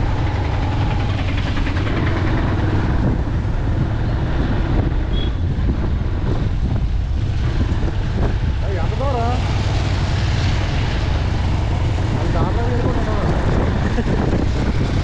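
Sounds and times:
motorcycle engine rumble: 0.0s - 15.0s
wind on microphone: 0.0s - 15.0s.

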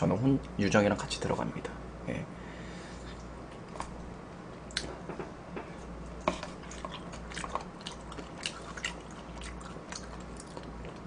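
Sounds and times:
steady low hum: 0.0s - 11.0s
person chewing food: 5.8s - 11.0s.

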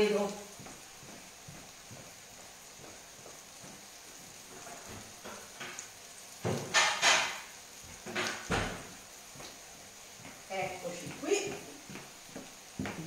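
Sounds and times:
dough sizzling in oil: 0.0s - 13.0s
plate knocking and clattering: 6.4s - 8.8s.

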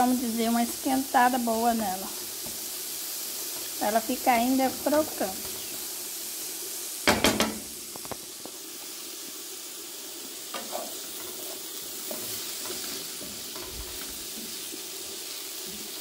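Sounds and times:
vegetables sizzling in frying pan: 0.0s - 16.0s
spoon knocking against pan: 7.1s - 7.7s
wooden spoon stirring and scraping: 10.5s - 16.0s.

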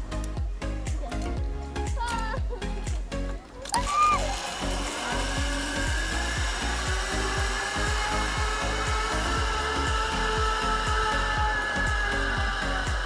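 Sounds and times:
background music with a beat: 0.0s - 13.0s
zip-line pulleys whirring on cable: 3.6s - 13.0s.

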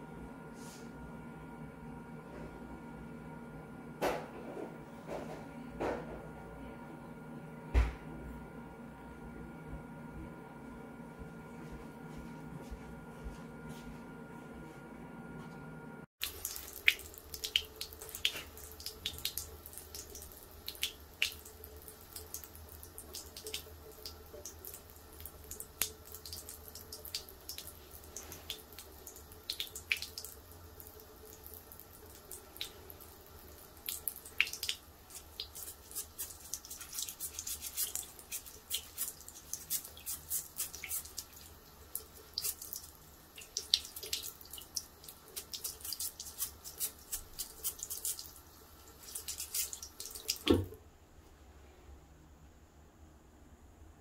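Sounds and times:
tap water running into basin: 16.2s - 50.8s
water splashing and dripping: 16.2s - 50.8s.

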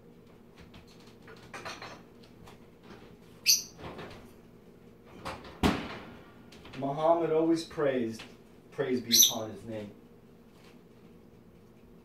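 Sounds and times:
utensils knocking and rustling: 0.6s - 3.1s.

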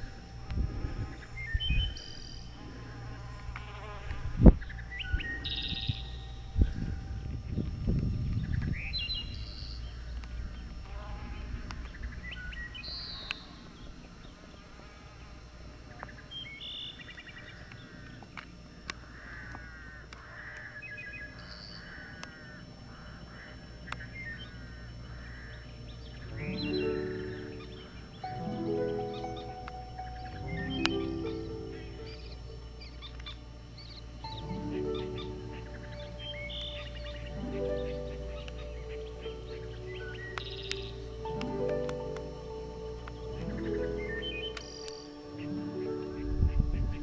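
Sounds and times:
wind rumbling on microphone: 0.0s - 16.0s, 45.5s - 47.0s
birds chirping: 0.0s - 47.0s.

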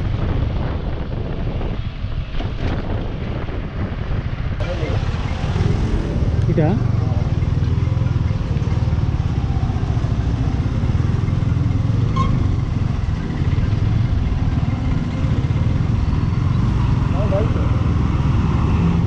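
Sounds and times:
motorcycle engine running: 4.6s - 17.7s.

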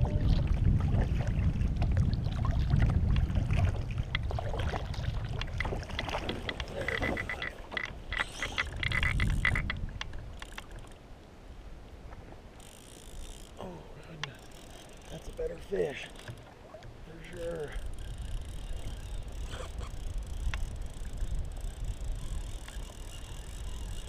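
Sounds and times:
fishing reel clicking: 6.4s - 11.0s, 12.6s - 16.5s, 17.3s - 24.0s.

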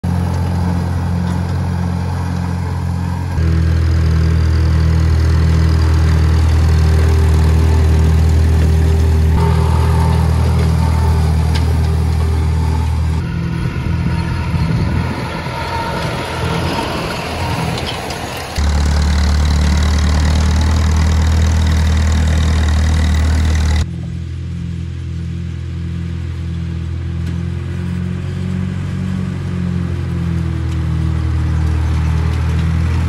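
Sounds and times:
tractor engine running: 0.0s - 33.0s.

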